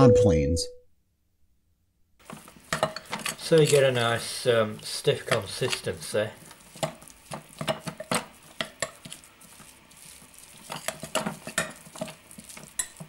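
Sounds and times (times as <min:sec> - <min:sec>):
spoon scraping glass bowl: 0:02.3 - 0:04.2, 0:06.7 - 0:13.0.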